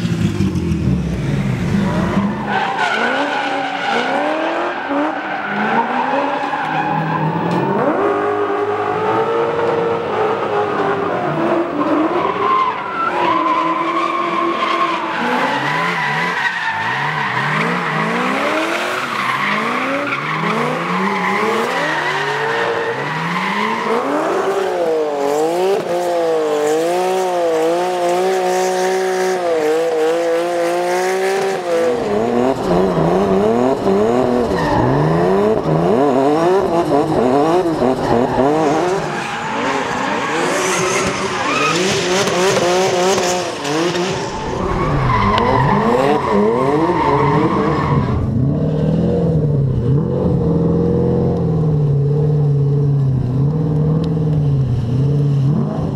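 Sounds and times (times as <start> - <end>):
car engines revving hard: 0.0 - 55.9
tyre squeal: 38.0 - 48.3.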